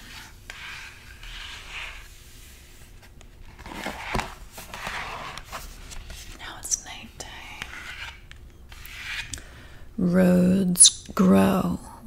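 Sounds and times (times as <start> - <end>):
hand brushing cardboard page: 0.0 - 6.5
stiff page turning rustle: 2.9 - 6.4.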